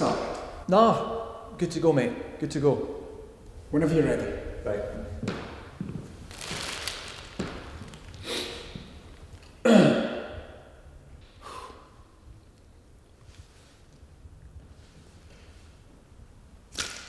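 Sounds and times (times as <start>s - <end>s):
man breathing deeply: 8.2s - 8.8s, 11.3s - 12.2s.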